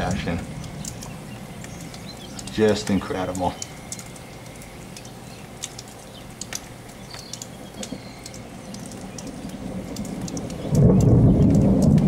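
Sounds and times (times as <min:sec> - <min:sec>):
raindrop ticks: 0:00.0 - 0:12.0
steady rain falling: 0:00.0 - 0:12.0
low thunder rumble: 0:08.3 - 0:12.0.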